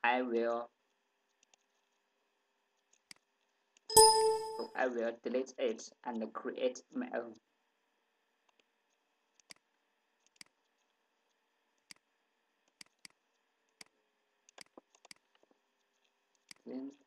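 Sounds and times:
computer mouse clicks: 1.3s - 1.9s, 9.3s - 9.6s, 10.2s - 10.9s, 12.7s - 13.2s, 14.5s - 16.6s.

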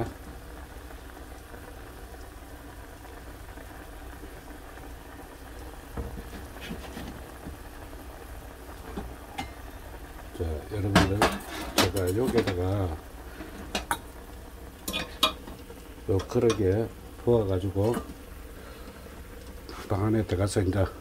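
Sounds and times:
broth boiling in a pot: 0.0s - 21.0s.

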